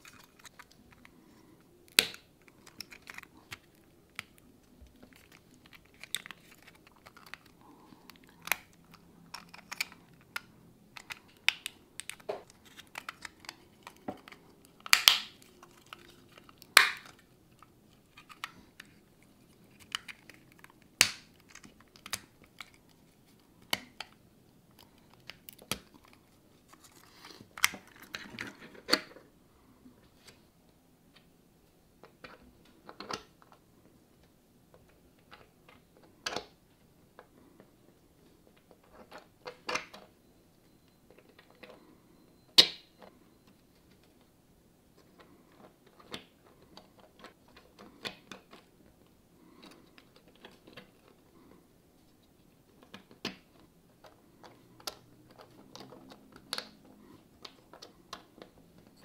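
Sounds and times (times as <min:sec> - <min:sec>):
plastic parts clicking and snapping: 0:00.0 - 0:01.2, 0:01.9 - 0:23.0, 0:23.6 - 0:29.2, 0:45.0 - 0:48.7, 0:52.7 - 0:59.0.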